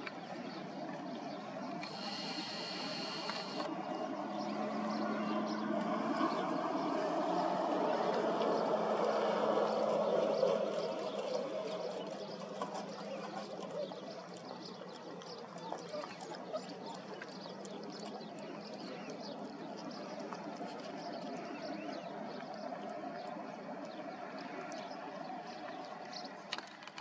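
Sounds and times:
puppies lapping from a bowl: 0:07.1 - 0:25.6.

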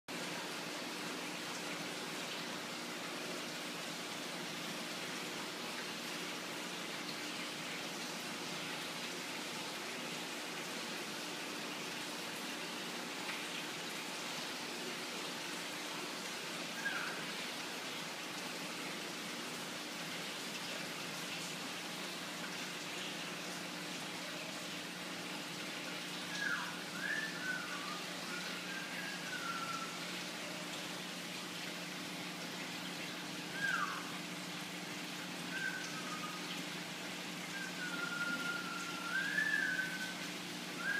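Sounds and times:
short whistled chirps: 0:26.4 - 0:30.0, 0:37.5 - 0:40.2.

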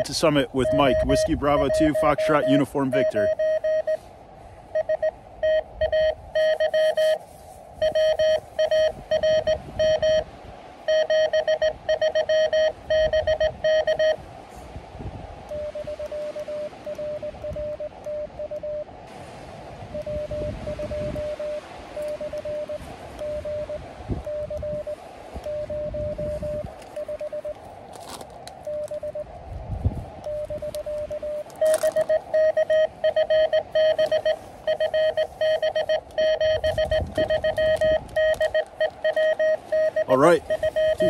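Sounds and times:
morse code tone: 0:00.0 - 0:04.0, 0:04.7 - 0:07.2, 0:07.8 - 0:10.3, 0:10.9 - 0:14.2, 0:15.5 - 0:18.9, 0:19.9 - 0:27.6, 0:28.6 - 0:29.3, 0:30.2 - 0:41.0
radio band noise hiss: 0:00.0 - 0:04.8, 0:30.1 - 0:41.0.

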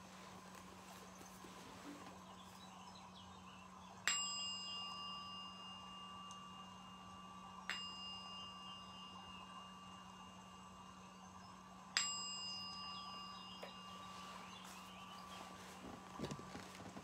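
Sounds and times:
faint low hum: 0:00.0 - 0:17.0
small bell ringing: 0:03.2 - 0:16.6.

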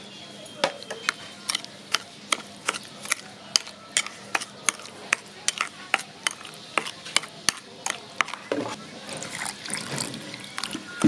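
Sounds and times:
spoon clinking against a bowl: 0:00.7 - 0:08.4
spoon stirring thick sauce: 0:00.7 - 0:11.0.

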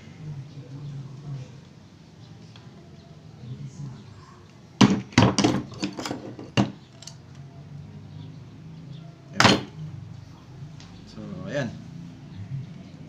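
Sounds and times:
screwdriver clinking on metal: 0:05.4 - 0:07.3.

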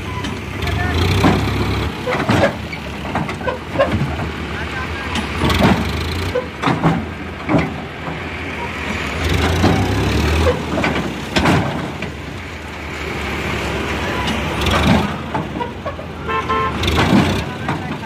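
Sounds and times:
diesel tractor engine running: 0:00.0 - 0:18.0
knocks and thuds: 0:01.1 - 0:04.5, 0:05.2 - 0:08.3, 0:10.6 - 0:12.2, 0:16.8 - 0:18.0.

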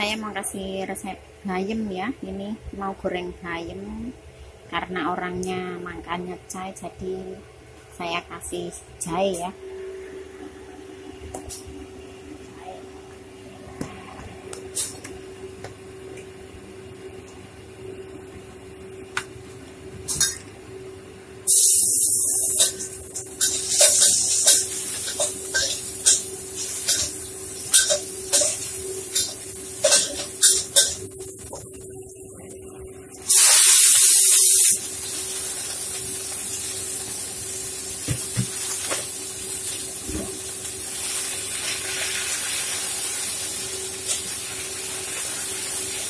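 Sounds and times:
steady low hum: 0:00.0 - 0:41.0
ginger sizzling in hot oil: 0:21.5 - 0:31.5, 0:33.2 - 0:46.0.

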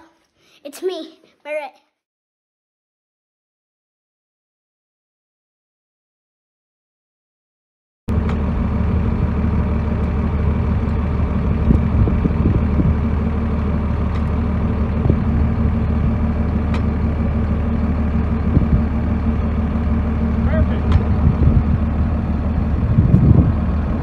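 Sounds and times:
engine idling: 0:08.1 - 0:24.0.

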